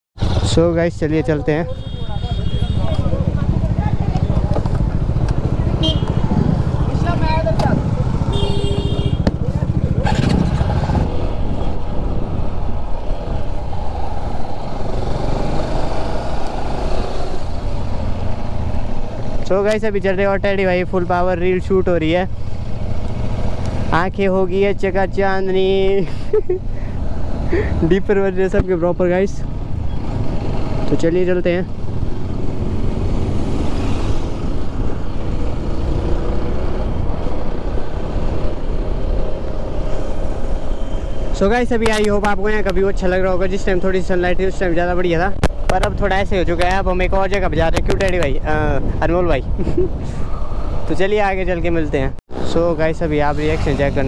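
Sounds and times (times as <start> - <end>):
motorcycle engine cruising: 0.2 - 54.0
motorcycle engine running: 1.8 - 11.6
wind buffeting microphone: 2.9 - 8.4, 9.2 - 17.8, 45.1 - 52.0
wind rushing over microphone: 2.9 - 25.9, 31.7 - 54.0.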